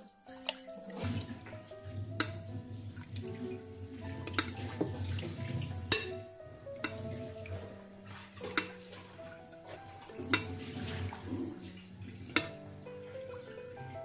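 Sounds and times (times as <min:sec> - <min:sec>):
ladle pouring sauce: 0:00.5 - 0:14.0
metal ladle knocking against pot: 0:02.2 - 0:02.5, 0:04.2 - 0:05.0, 0:05.9 - 0:06.2, 0:06.8 - 0:07.8, 0:08.4 - 0:09.0, 0:10.2 - 0:10.6, 0:12.3 - 0:12.6.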